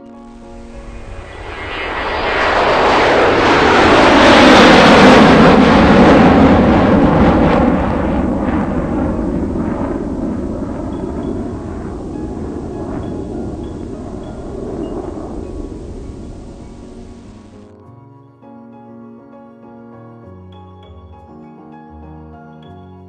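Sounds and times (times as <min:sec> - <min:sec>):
aircraft passing overhead: 0:00.0 - 0:17.6.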